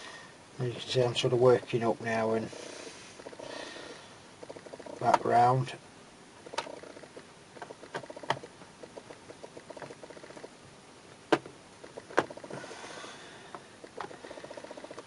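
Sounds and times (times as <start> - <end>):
screwdriver scratchy ticking: 0.7 - 5.5, 6.4 - 10.6, 11.3 - 12.6, 13.6 - 15.0.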